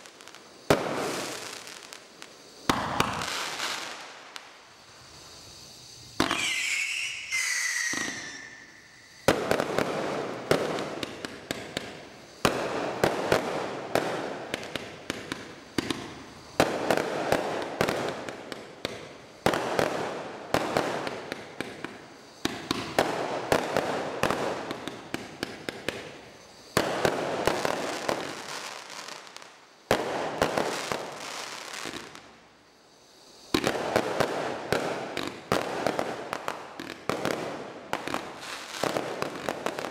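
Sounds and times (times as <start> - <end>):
firework shots and crackling bursts: 0.0 - 39.9
firework whistles: 0.0 - 39.9.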